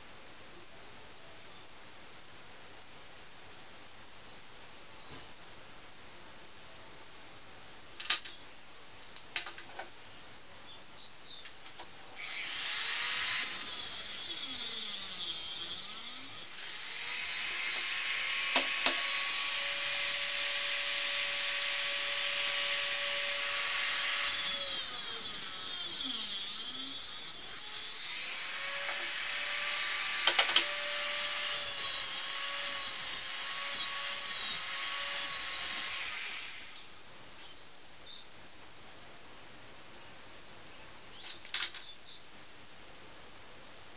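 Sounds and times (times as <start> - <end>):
rotary tool whining: 12.2 - 36.9.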